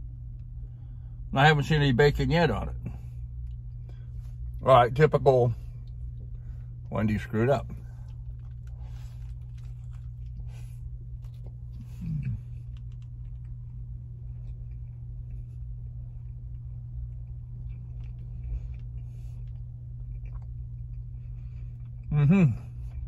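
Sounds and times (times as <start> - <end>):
person chewing a burger: 0.0 - 1.3, 2.7 - 23.0
steady low hum: 0.0 - 23.0
person murmuring: 12.0 - 12.4.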